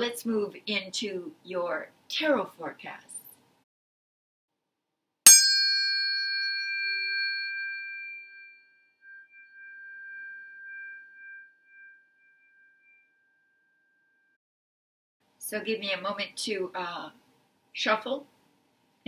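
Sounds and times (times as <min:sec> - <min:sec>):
metal bell ringing: 0:05.3 - 0:13.8.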